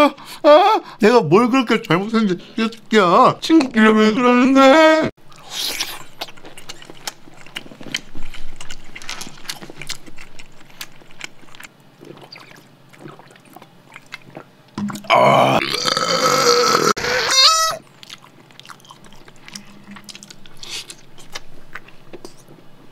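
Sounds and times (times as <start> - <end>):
wet chewing mouth sounds: 5.3 - 15.1, 17.8 - 22.5.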